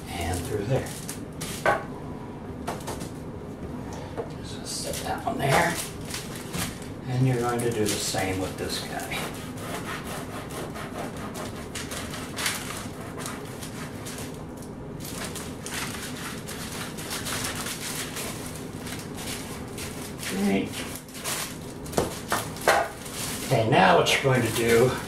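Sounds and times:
knife sawing through bread crust: 9.1 - 14.0.

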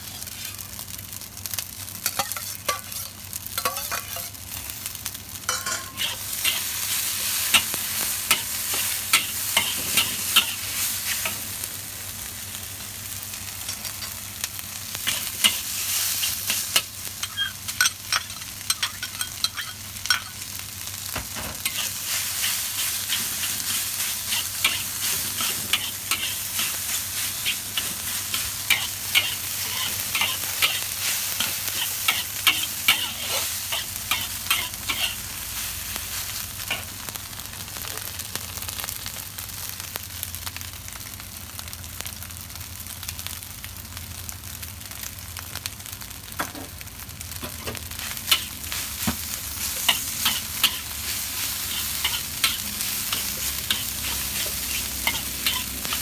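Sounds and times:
food sizzling in a wok: 0.0 - 56.0
spatula scraping a wok: 2.0 - 4.4, 5.5 - 11.4, 15.0 - 20.4, 21.6 - 36.9, 47.9 - 56.0.

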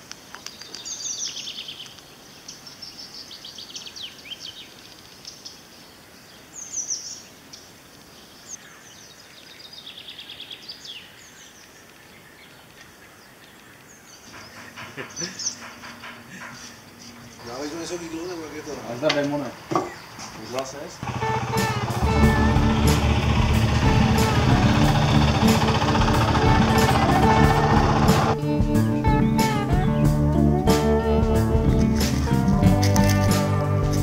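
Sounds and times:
faint steady hiss: 0.0 - 14.4
songbirds chirping: 0.0 - 34.0
low hum with rapid ticking: 21.2 - 28.4.

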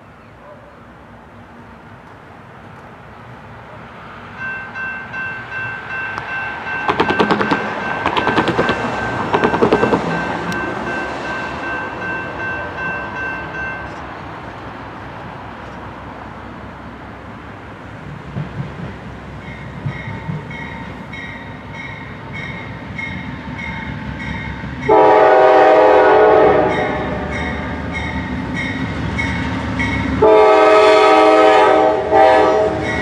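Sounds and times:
locomotive air horn chord: 24.9 - 27.4, 30.2 - 33.0.

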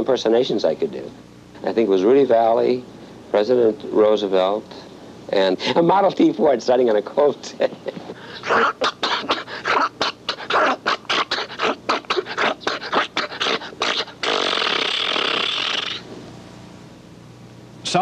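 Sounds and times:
man imitating engine sputtering: 7.8 - 16.0
man imitating hiss: 8.1 - 16.1.

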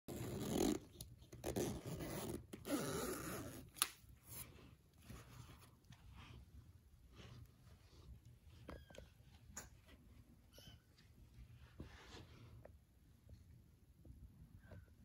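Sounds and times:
zipper being pulled open: 0.1 - 3.8.

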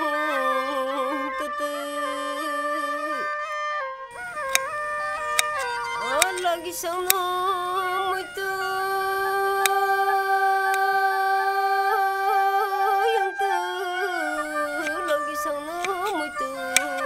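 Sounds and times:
slow melody of long held notes: 4.1 - 17.0
sharp clicks: 4.4 - 7.3, 9.6 - 9.8, 14.8 - 17.0.

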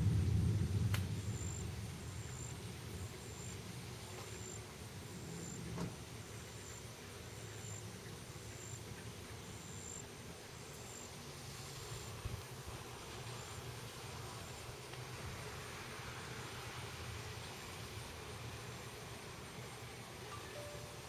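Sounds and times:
low thunder rumble: 0.0 - 3.6
insect chirping: 0.1 - 12.2, 13.1 - 14.7.

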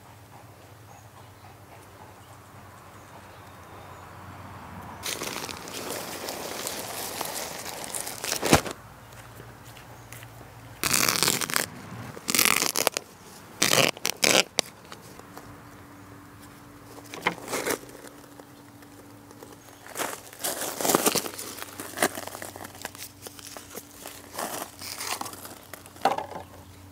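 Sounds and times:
plastic bag crinkling: 5.0 - 8.8, 10.8 - 15.2, 17.0 - 26.2
soil being scooped: 5.0 - 8.8.

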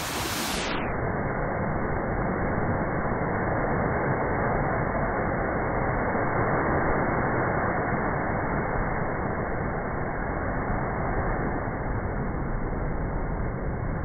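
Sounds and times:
surf rushing: 0.0 - 1.0.

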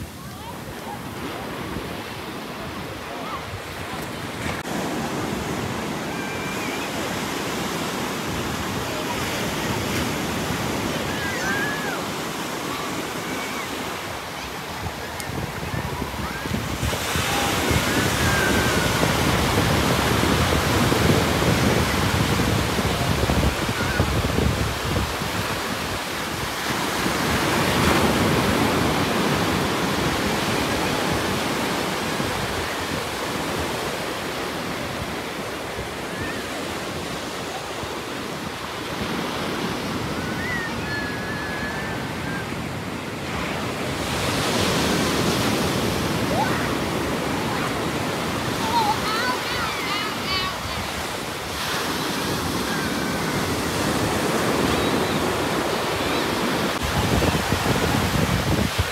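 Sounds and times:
ocean surf breaking: 0.0 - 58.9
wind buffeting microphone: 14.2 - 33.0, 56.8 - 58.9.

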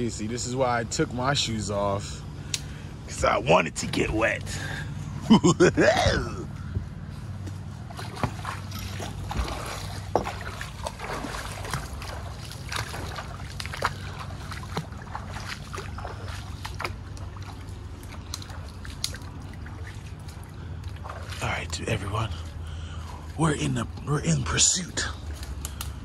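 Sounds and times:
steady low rumble: 0.0 - 26.0
footsteps splashing through water: 6.0 - 26.0
brush snapping and crackling: 10.8 - 21.1, 25.2 - 26.0.

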